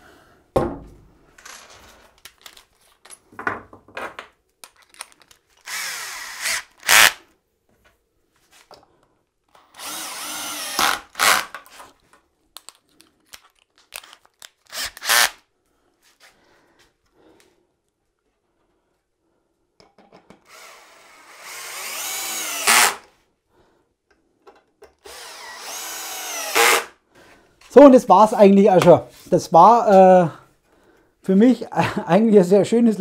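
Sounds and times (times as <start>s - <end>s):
cordless drill driving screws: 5.6s - 7.2s, 9.6s - 11.6s, 14.0s - 15.4s, 20.5s - 23.1s, 25.0s - 26.9s.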